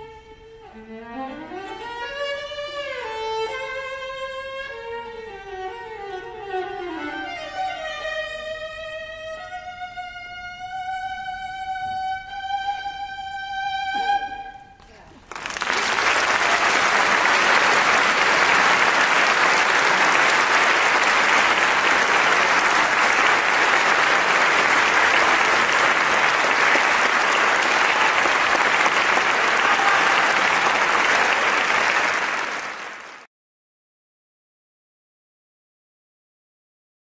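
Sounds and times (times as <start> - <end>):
audience applauding: 15.2 - 33.3.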